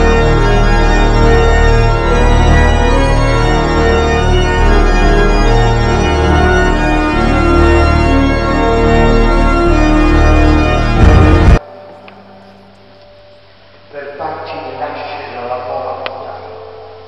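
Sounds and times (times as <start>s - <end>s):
organ playing sustained chords: 0.0s - 17.0s.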